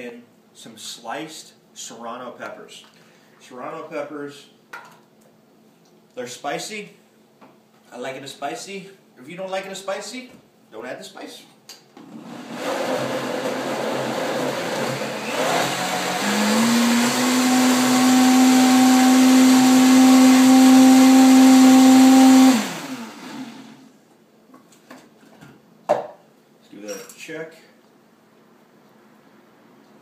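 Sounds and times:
blender whining: 12.0 - 23.9.

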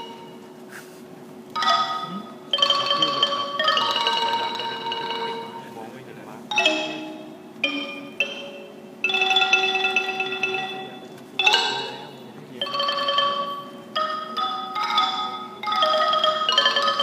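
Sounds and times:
wooden xylophone rolled notes: 0.0 - 0.4, 1.5 - 5.9, 6.5 - 17.0.

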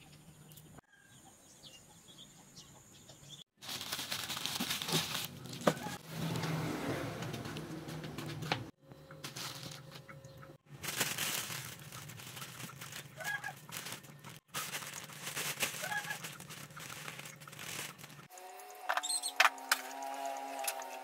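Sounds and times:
plastic bags crinkling: 3.6 - 6.1, 9.2 - 10.1, 10.7 - 18.3
hen clucking: 12.6 - 14.4, 15.7 - 16.9.

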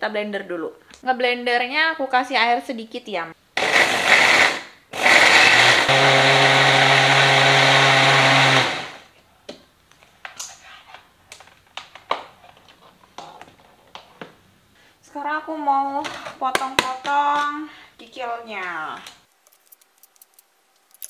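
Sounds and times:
blender running: 3.6 - 9.1.

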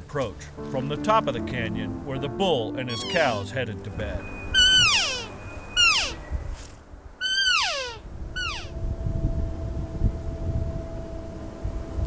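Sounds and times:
elk call mews sliding down: 4.6 - 6.2, 7.2 - 8.7.

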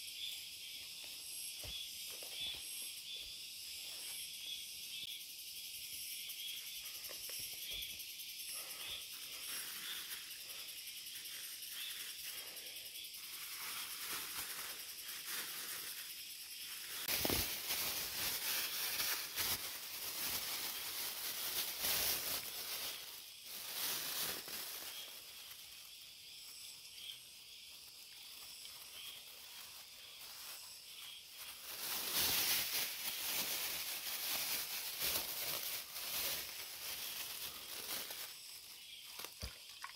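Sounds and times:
insects chirring: 0.0 - 39.9
rustling: 13.2 - 25.6, 28.3 - 39.4.

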